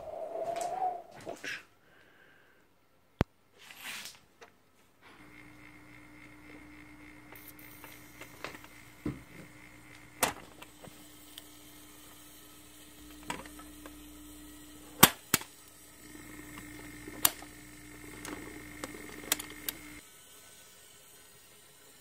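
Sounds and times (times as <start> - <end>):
turntable motor humming: 5.1 - 22.0
mechanism lever clicking and clacking: 18.1 - 19.9.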